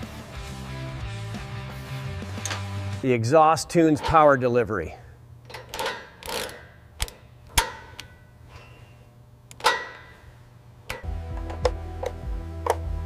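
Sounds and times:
background music: 0.0s - 3.7s, 11.0s - 13.0s
low steady hum: 2.4s - 13.0s.

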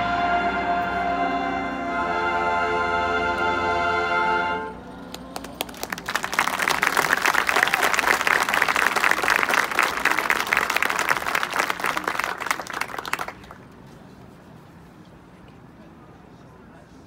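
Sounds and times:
audience applauding: 5.1s - 13.8s.

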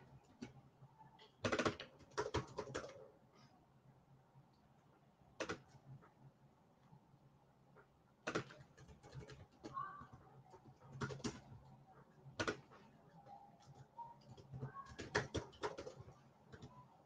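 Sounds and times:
keyboard and mouse clicking: 8.2s - 11.6s, 13.6s - 16.9s.

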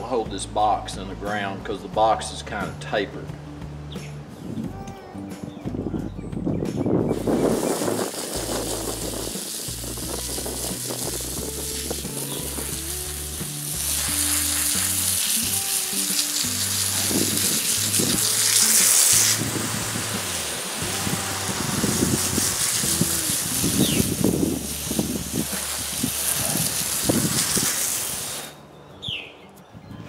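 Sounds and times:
background music with bass: 0.0s - 30.0s
hose nozzle spraying water: 7.1s - 28.6s.

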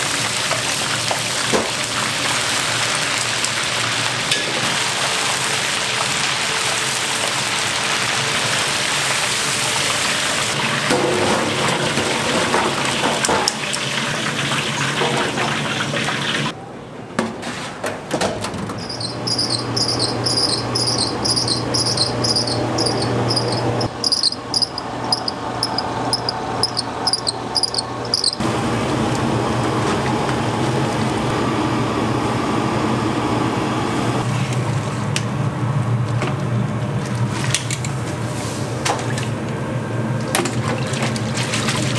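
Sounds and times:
meat sizzling in hot oil: 0.0s - 10.6s
dough rollers squeaking: 18.8s - 28.4s
noodle machine motor hum: 19.2s - 34.2s.

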